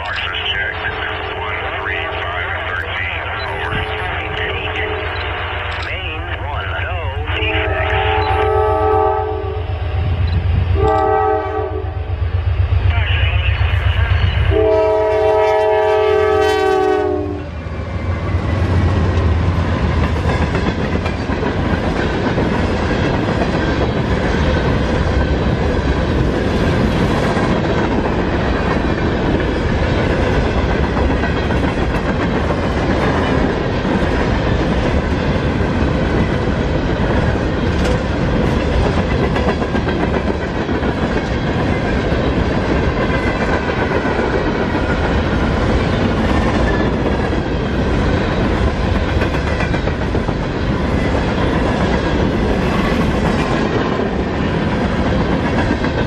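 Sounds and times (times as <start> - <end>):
train air horn: 4.8 - 5.4, 7.3 - 9.8, 10.8 - 12.1, 14.5 - 17.5
train wheels clattering on rails: 18.0 - 56.0.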